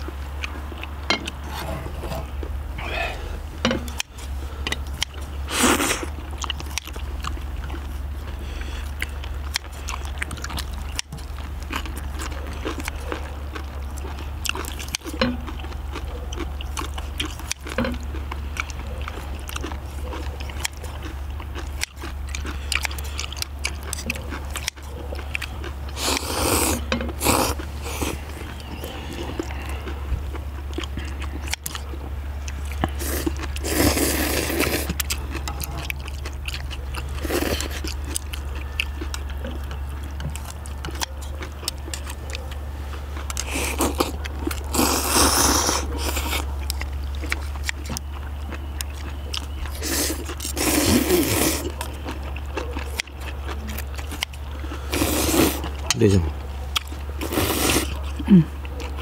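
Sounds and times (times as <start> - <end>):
chewing: 0.0 - 59.0
slurping noodles: 5.4 - 6.2, 25.9 - 29.7, 32.9 - 35.0, 43.4 - 46.5, 49.8 - 51.8, 54.8 - 55.7, 57.2 - 58.0.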